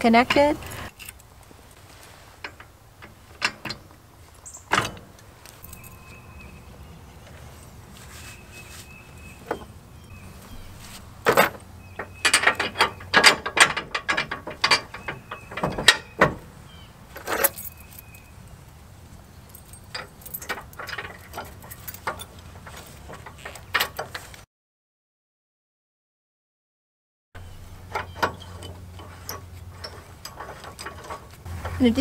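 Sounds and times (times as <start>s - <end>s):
metal hitch pin clicks and clanks: 2.4s - 7.4s, 9.2s - 24.4s, 27.4s - 32.0s.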